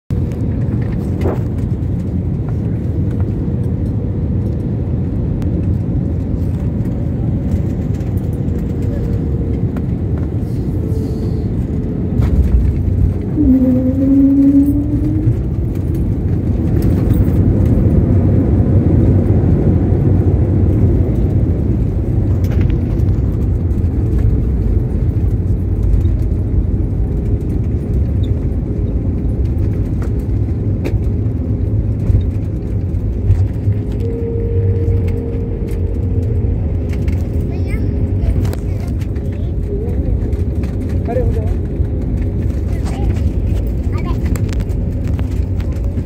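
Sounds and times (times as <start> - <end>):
airliner engine and runway rumble: 0.1 - 46.0
short rising whine: 13.2 - 15.9, 33.4 - 37.2.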